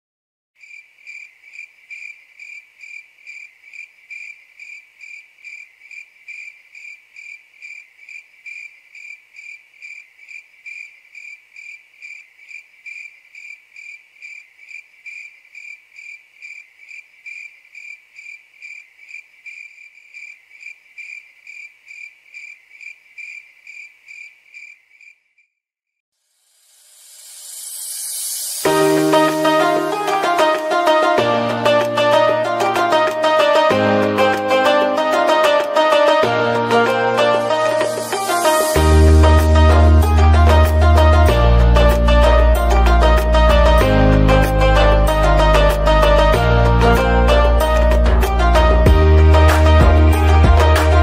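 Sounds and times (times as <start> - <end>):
cricket chirping: 0.6 - 25.5.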